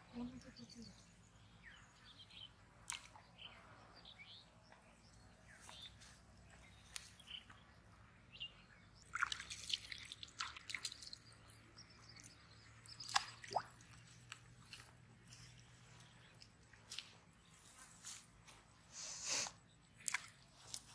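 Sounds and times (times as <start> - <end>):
water dripping and splashing: 2.8 - 3.2, 9.0 - 17.2, 20.0 - 20.9.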